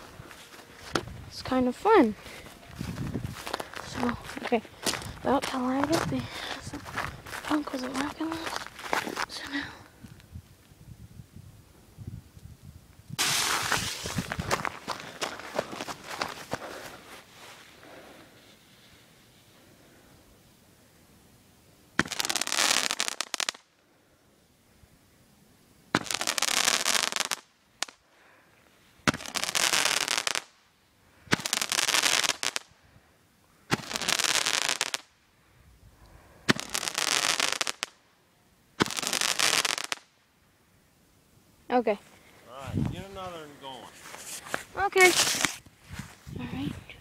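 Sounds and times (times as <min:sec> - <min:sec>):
faint outdoor background hiss: 0:00.0 - 0:47.0
loud firework hissing: 0:13.2 - 0:14.5, 0:22.0 - 0:23.6, 0:25.9 - 0:28.0, 0:29.0 - 0:30.6, 0:31.3 - 0:32.7, 0:33.7 - 0:35.1, 0:36.4 - 0:38.0, 0:38.8 - 0:40.1, 0:45.0 - 0:45.6
roman candle shots popping: 0:22.0 - 0:23.6, 0:25.9 - 0:28.0, 0:29.0 - 0:30.6, 0:33.7 - 0:35.1, 0:36.5 - 0:38.0, 0:38.8 - 0:40.1, 0:44.2 - 0:45.6.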